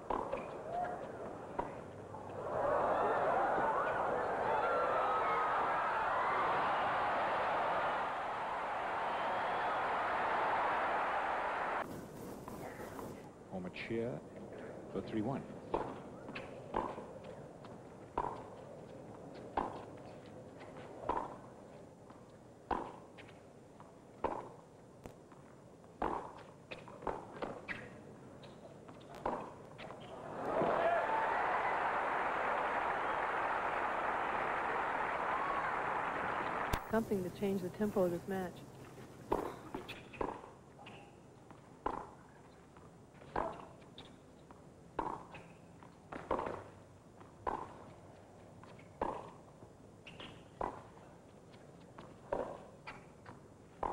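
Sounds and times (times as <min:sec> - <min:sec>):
tennis ball hit by rackets: 0:00.0 - 0:00.6, 0:15.7 - 0:17.2, 0:18.2 - 0:18.6, 0:19.4 - 0:20.0, 0:21.0 - 0:21.5, 0:22.7 - 0:23.4, 0:24.2 - 0:24.6, 0:26.0 - 0:30.2, 0:39.3 - 0:41.1, 0:41.8 - 0:42.2, 0:43.2 - 0:43.7, 0:45.0 - 0:46.7, 0:47.4 - 0:47.9, 0:48.8 - 0:49.4, 0:50.1 - 0:51.0, 0:52.2 - 0:53.0.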